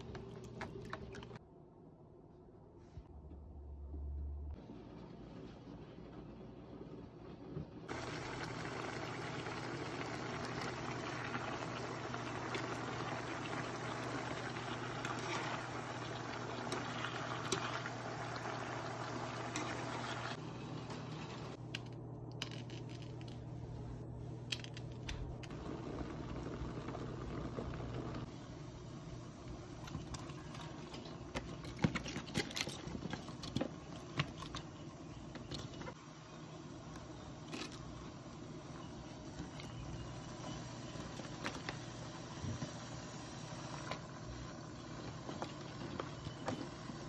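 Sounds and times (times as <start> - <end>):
pot boiling and bubbling: 0.0 - 1.4, 4.6 - 21.6, 25.4 - 47.0
chicken sizzling in a frying pan: 7.9 - 20.4.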